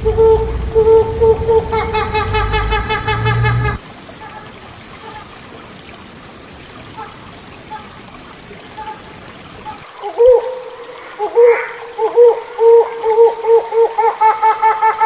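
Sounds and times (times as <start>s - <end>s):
hornbill calling: 0.0s - 5.2s
stream-like water noise: 0.0s - 15.0s.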